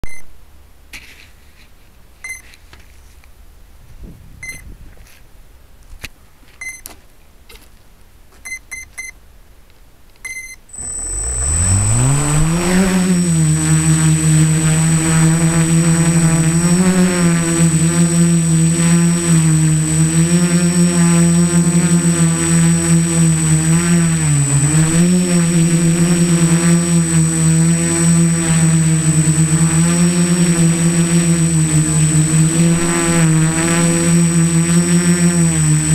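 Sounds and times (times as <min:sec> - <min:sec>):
short electronic beeps: 0:00.0 - 0:00.3, 0:02.2 - 0:02.5, 0:04.4 - 0:04.6, 0:06.6 - 0:06.9, 0:08.5 - 0:09.2, 0:10.3 - 0:13.4
constant high whine: 0:10.2 - 0:35.9
drone motors buzzing: 0:10.7 - 0:35.9.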